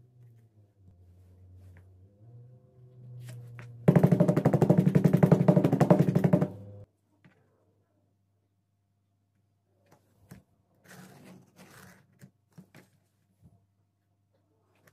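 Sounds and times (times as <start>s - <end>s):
hammer tapping on leather: 3.9s - 6.6s.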